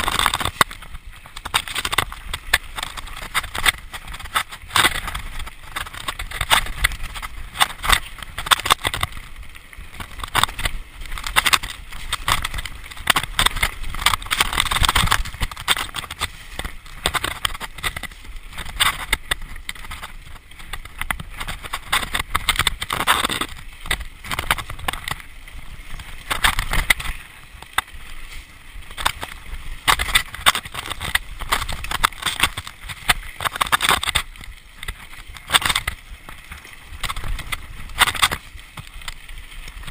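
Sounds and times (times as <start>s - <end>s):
mountain bike rattling over rocks: 0.0s - 39.9s.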